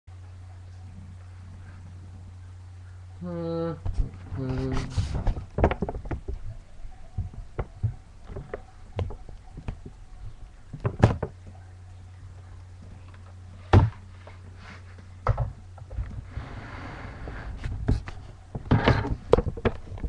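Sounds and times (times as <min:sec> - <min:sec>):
low steady hum: 0:00.1 - 0:20.0
handling knocks and clicks: 0:05.2 - 0:11.5, 0:17.9 - 0:20.0.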